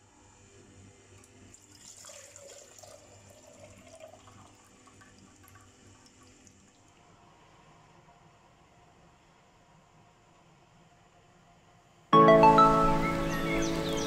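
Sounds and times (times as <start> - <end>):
faint steady hum: 0.0 - 14.0
juice trickling into plastic jug: 1.1 - 7.1.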